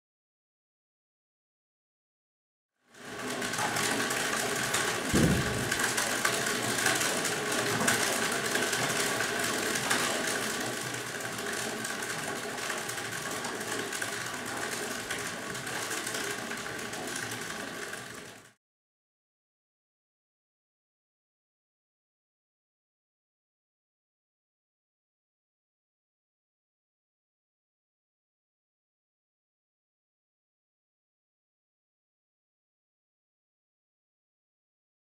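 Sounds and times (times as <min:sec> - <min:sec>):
spinning drum whirring: 0:03.0 - 0:18.6
thump: 0:05.1 - 0:05.9.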